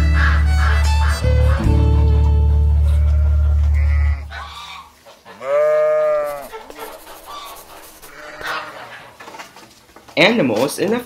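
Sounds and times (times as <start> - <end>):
farm animal bleating: 2.4 - 9.0.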